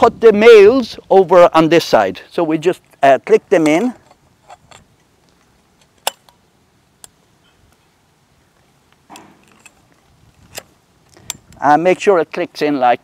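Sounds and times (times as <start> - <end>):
frame fittings clicking together: 9.1 - 11.6.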